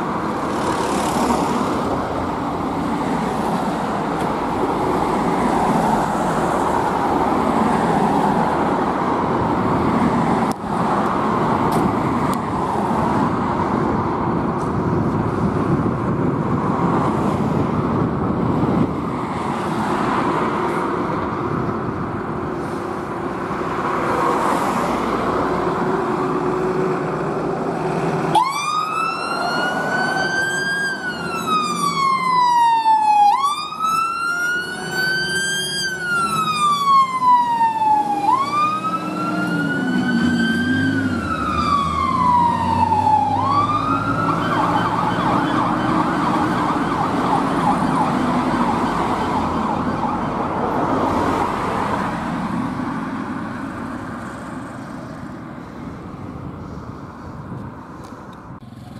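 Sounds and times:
siren wailing: 28.3 - 50.6.

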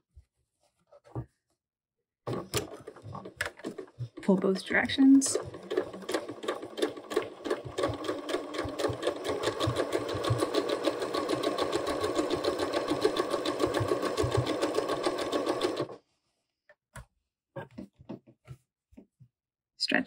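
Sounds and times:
electric sewing machine stitching: 2.3 - 16.0.

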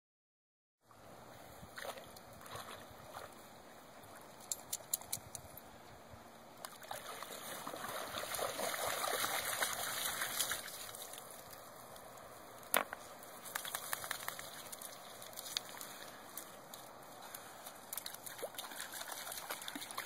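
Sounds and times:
dog splashing through water: 6.8 - 11.2, 18.0 - 20.0.

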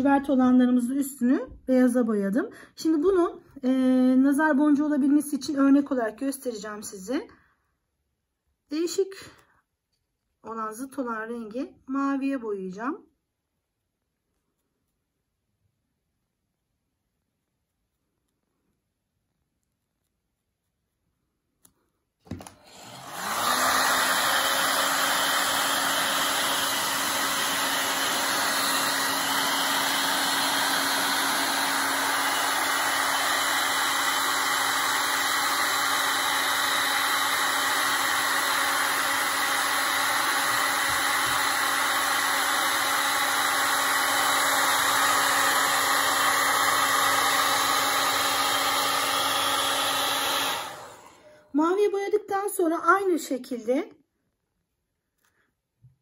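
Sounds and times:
hair dryer blowing: 22.2 - 51.8.

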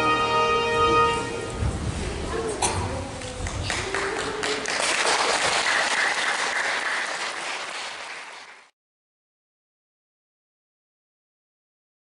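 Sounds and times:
audience applauding: 3.3 - 8.7.

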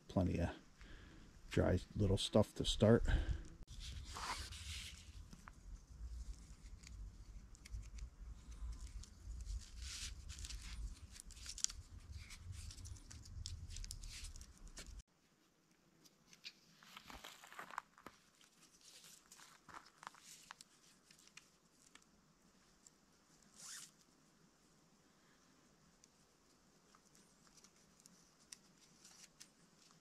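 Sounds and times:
hands rustling on cord: 3.6 - 15.0, 16.0 - 24.1, 26.0 - 30.0.

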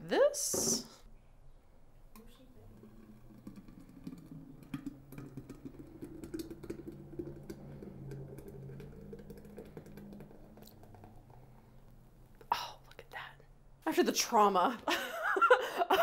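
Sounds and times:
thick liquid pouring into pitcher: 2.1 - 12.5.

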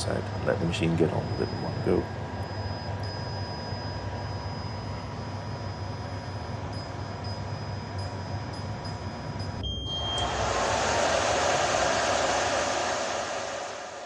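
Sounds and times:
laser cutter whirring: 0.0 - 8.5, 9.1 - 14.0
thin high tone: 3.2 - 14.0.

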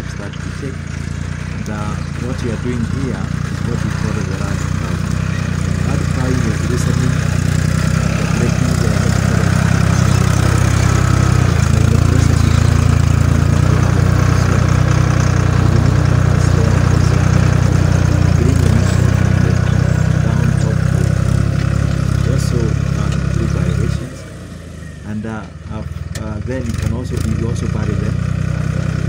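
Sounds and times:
tractor diesel engine under load: 0.0 - 29.0.

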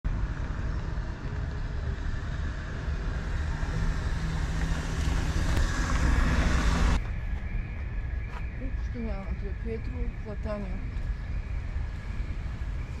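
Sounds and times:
low rumble of city noise: 0.0 - 13.0.

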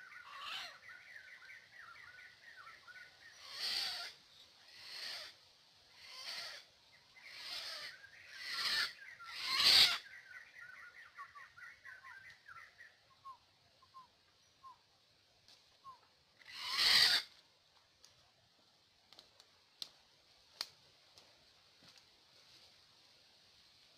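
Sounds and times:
bird chirping: 0.0 - 5.3, 6.0 - 14.9.

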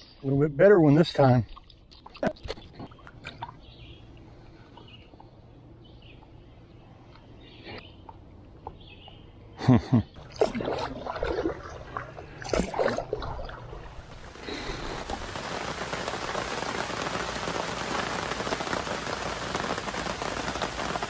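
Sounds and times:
steady rain: 13.8 - 21.0.

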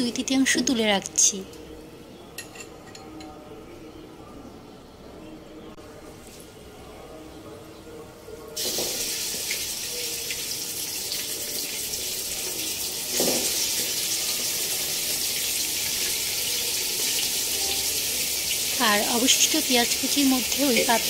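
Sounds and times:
meat sizzling in hot oil: 8.6 - 21.0.

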